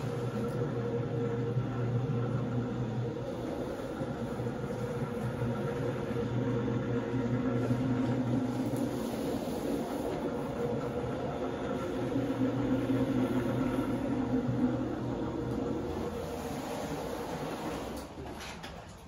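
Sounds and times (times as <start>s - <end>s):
floor scrubber motor hum: 0.0s - 19.0s
brush scrubbing wet rug: 7.0s - 18.0s.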